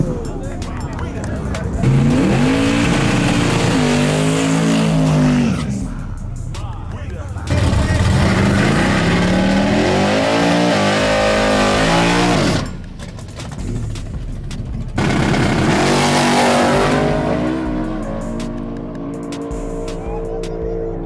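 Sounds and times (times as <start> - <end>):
drag car engine revving: 1.7 - 6.0, 7.4 - 12.8, 15.0 - 21.0.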